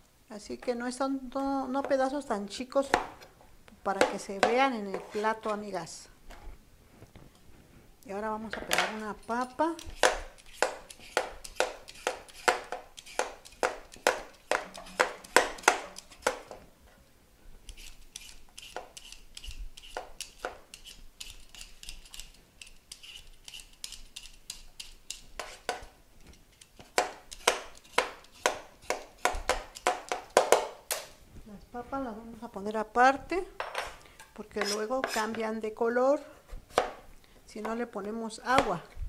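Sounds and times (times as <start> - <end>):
peeler scraping potato skin: 9.3 - 16.3, 17.7 - 30.4, 34.5 - 35.4.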